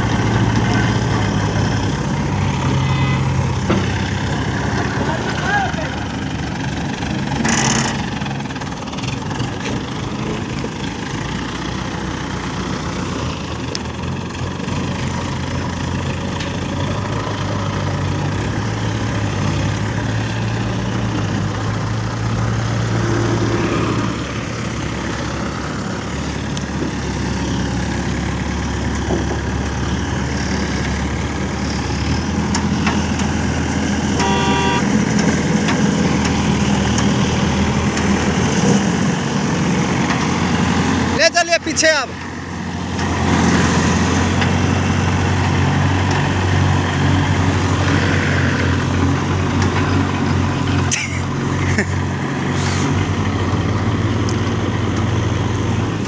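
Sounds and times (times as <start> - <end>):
diesel engine running: 0.0 - 56.0
horn toot: 34.2 - 34.9.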